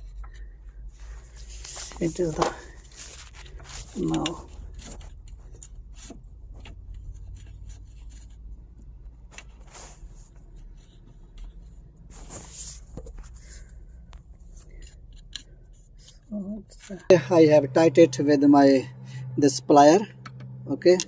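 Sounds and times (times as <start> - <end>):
fingers threading a nut: 4.0 - 8.8.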